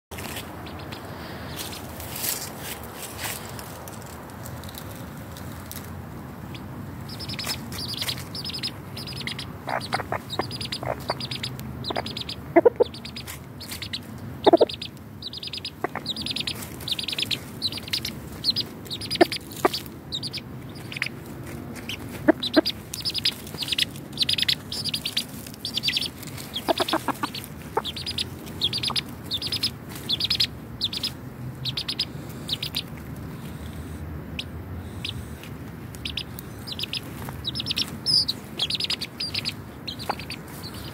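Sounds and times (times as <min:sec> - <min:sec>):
chickens clucking: 0:06.5 - 0:40.9.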